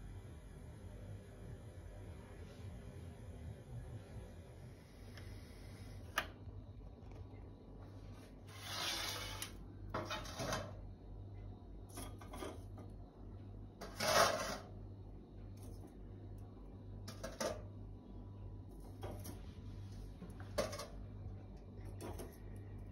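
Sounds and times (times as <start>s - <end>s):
steady low hum: 0.0s - 22.9s
charcoal rattling scrapes: 8.5s - 10.7s, 13.8s - 14.7s.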